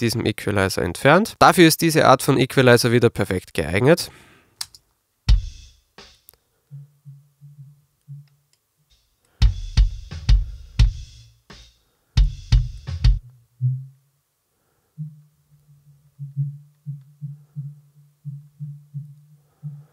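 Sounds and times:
kick drum hits: 0:05.3 - 0:05.7, 0:12.2 - 0:13.2
soft low pulses: 0:14.9 - 0:19.9.

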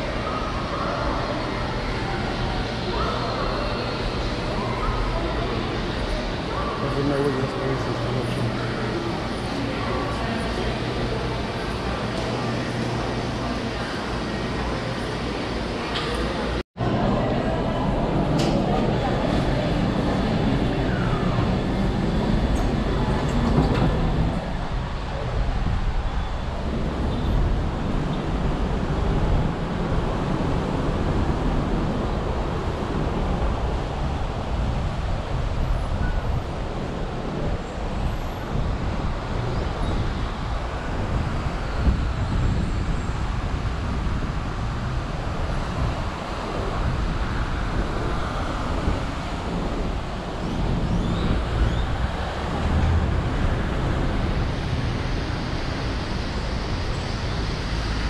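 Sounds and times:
road traffic: 0:00.0 - 0:58.0
wind buffeting microphone: 0:16.8 - 0:58.0.

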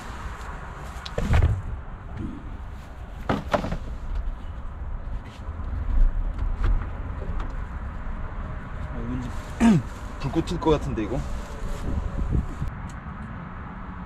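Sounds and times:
handling noise: 0:02.8 - 0:04.4.

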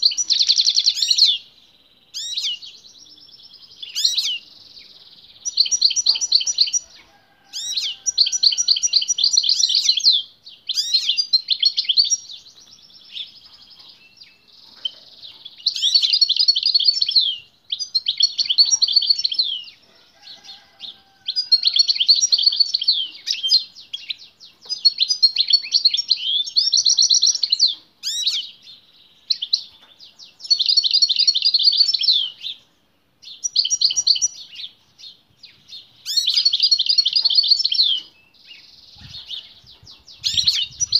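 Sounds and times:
goldfinch twittering song: 0:02.1 - 0:19.8, 0:20.4 - 0:40.9.

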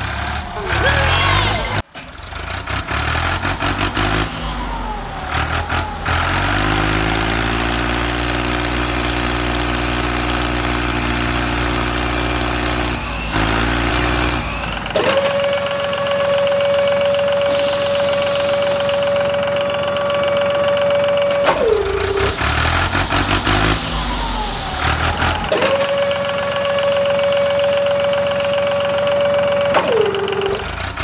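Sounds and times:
tractor engine running: 0:00.0 - 0:31.0
steady high whine: 0:17.5 - 0:25.5.

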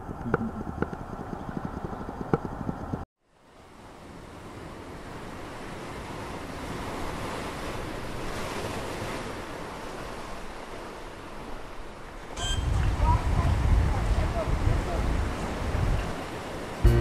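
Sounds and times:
wind buffeting microphone: 0:00.0 - 0:03.0, 0:12.4 - 0:16.8
ocean waves washing in: 0:02.8 - 0:17.0.

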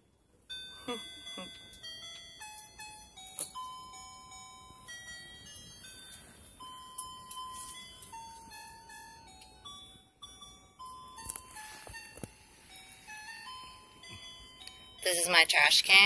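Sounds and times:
electronic tone melody: 0:09.6 - 0:14.9.

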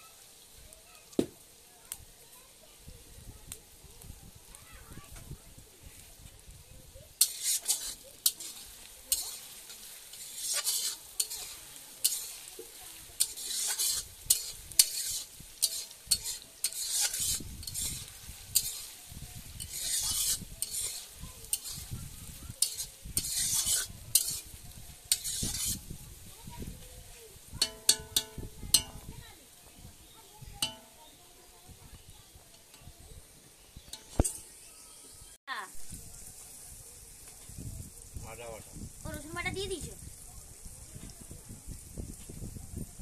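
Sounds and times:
onions sizzling in oil: 0:00.0 - 0:43.0
spatula scraping metal pan: 0:07.2 - 0:25.9, 0:27.6 - 0:29.2, 0:30.2 - 0:31.2, 0:33.8 - 0:35.2.

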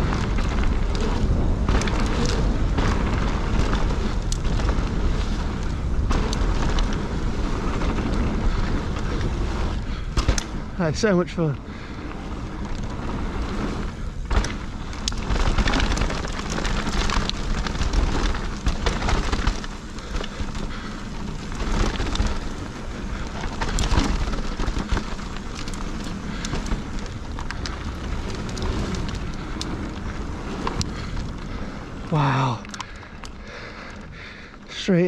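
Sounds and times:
bike rattling over bumps: 0:00.0 - 0:35.0
bike tyres on gravel trail: 0:00.0 - 0:35.0.

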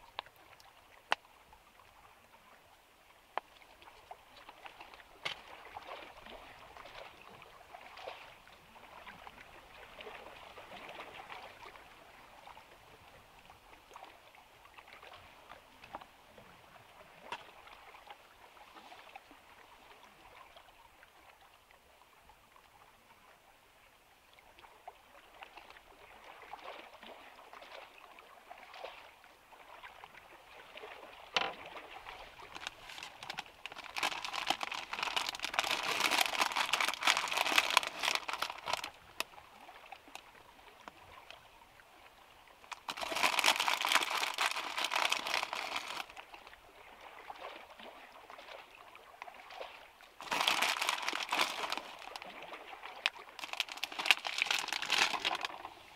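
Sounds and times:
plastic bag crinkling: 0:32.5 - 0:38.9, 0:42.7 - 0:46.1, 0:50.2 - 0:52.2, 0:53.4 - 0:55.5.

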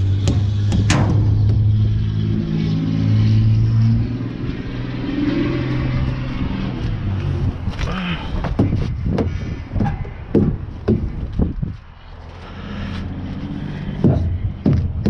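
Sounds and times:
dull thumps: 0:08.4 - 0:11.8, 0:14.0 - 0:15.0.

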